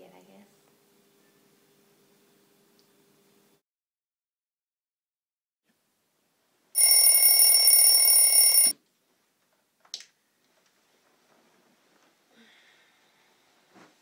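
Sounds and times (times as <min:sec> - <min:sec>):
bell ringing: 0:06.8 - 0:08.7.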